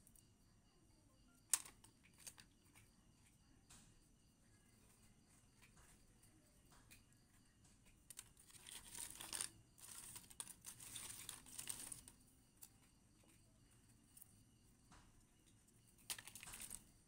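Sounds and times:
wood chips rustling and scraping: 8.2 - 12.2, 16.1 - 16.9.

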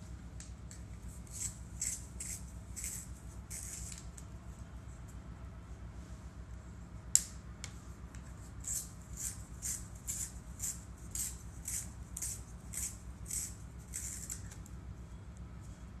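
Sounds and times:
low steady hum: 0.0 - 16.0
pencil sharpener rasping: 1.3 - 4.0, 8.6 - 14.4.

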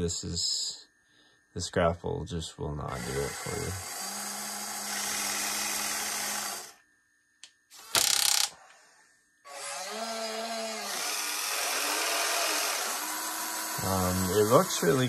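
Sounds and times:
toy excavator motor whine: 2.8 - 6.8, 7.7 - 15.0.

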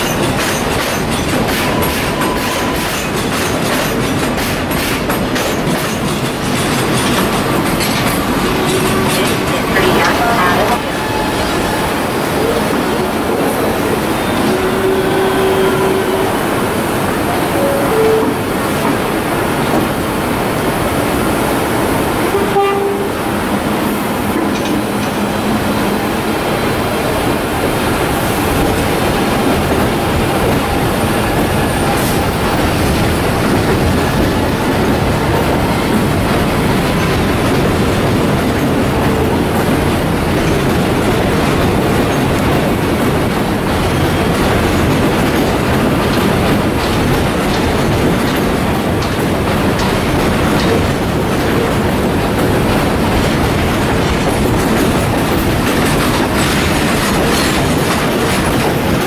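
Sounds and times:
wheels clattering over rail joints: 0.0 - 17.4, 23.6 - 59.0
train rumble: 0.0 - 59.0.

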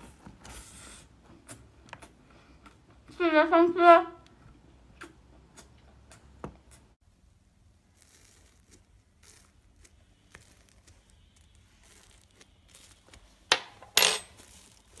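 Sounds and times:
bubbling foam crackling: 7.5 - 13.4
metal spoon stirring foam: 7.6 - 15.0.

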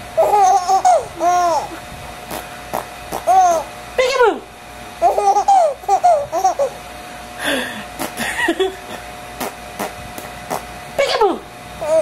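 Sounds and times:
baby giggling: 0.2 - 3.7, 5.0 - 6.8.

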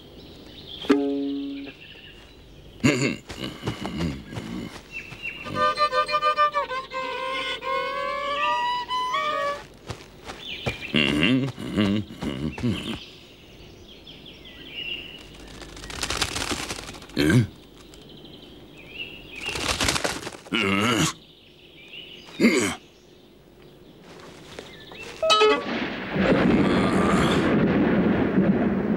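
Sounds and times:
cartoon sound effects sliding down: 25.2 - 25.8.

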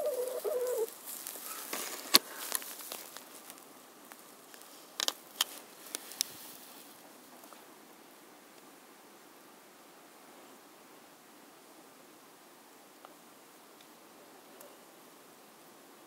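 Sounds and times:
rooster pecking in straw: 0.0 - 7.0.

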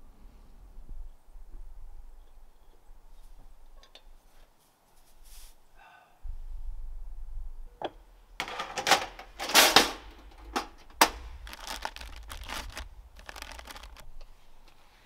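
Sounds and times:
rustling: 10.9 - 15.0.

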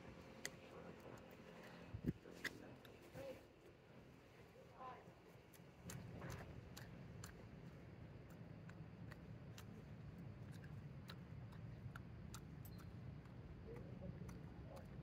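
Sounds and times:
low steady hum: 0.0 - 15.0
sharp ticks and clicks: 5.5 - 15.0.

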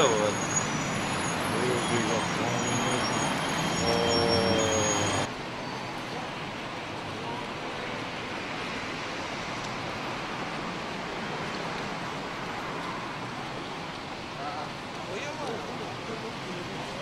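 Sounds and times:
motor vehicle running: 0.6 - 5.3.

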